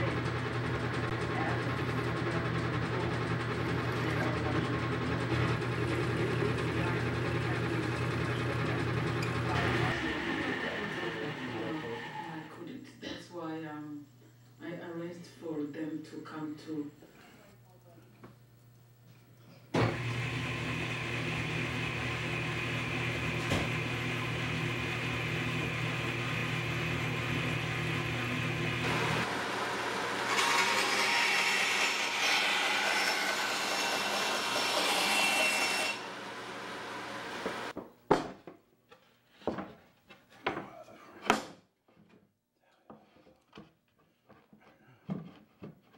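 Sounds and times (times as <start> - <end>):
band saw cutting plywood: 0.0 - 12.5, 19.8 - 37.7
power tool motor humming: 19.8 - 37.7.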